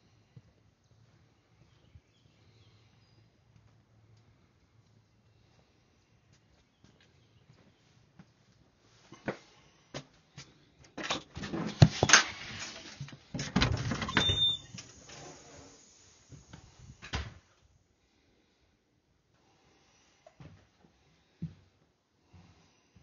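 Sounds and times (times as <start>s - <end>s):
door opening and closing: 13.4s - 15.8s.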